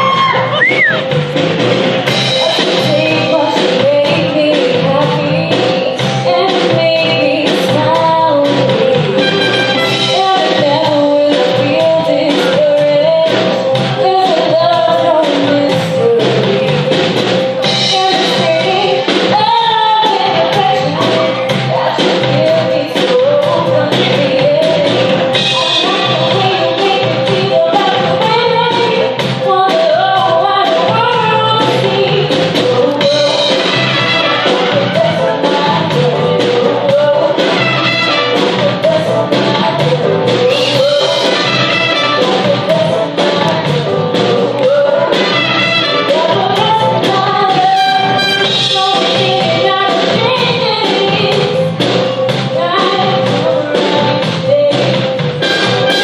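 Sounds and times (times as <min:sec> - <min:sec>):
drum kit beat: 0:00.0 - 0:56.0
live soul-disco band: 0:00.0 - 0:56.0
woman singing: 0:02.1 - 0:56.0.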